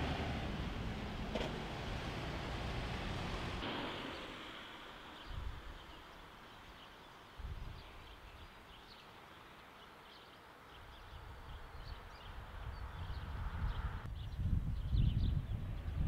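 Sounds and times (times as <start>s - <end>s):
low rumbles: 0.0s - 6.0s
passing train: 0.0s - 6.7s
songbirds chirping: 0.0s - 16.0s.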